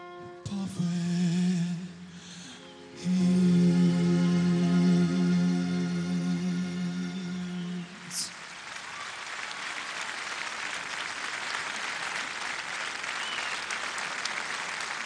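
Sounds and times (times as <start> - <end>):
audience applauding: 7.3 - 15.0.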